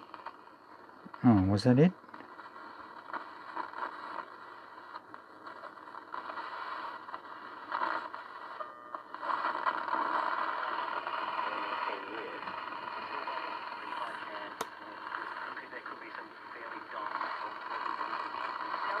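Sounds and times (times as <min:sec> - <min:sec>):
radio hiss and static: 0:00.0 - 0:19.0.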